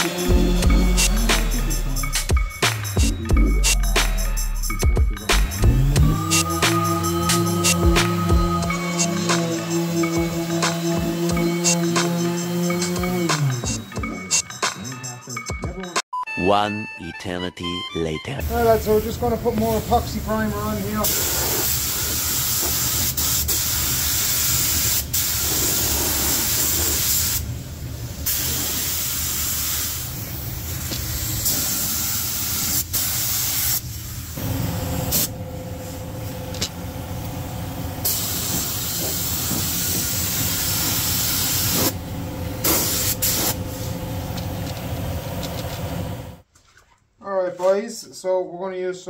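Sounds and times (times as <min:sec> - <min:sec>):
spray gun hissing: 0:18.4 - 0:44.9.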